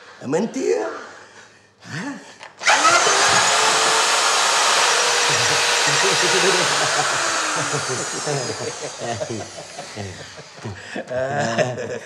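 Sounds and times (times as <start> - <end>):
electric drill whirring: 2.6 - 10.7.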